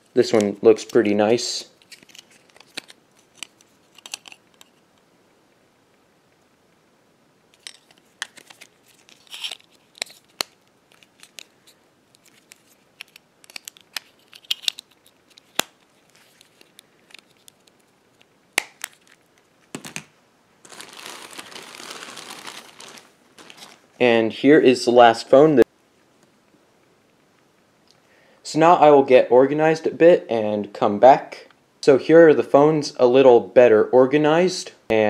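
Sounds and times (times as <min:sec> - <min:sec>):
plastic bag rustling: 0:18.8 - 0:24.0.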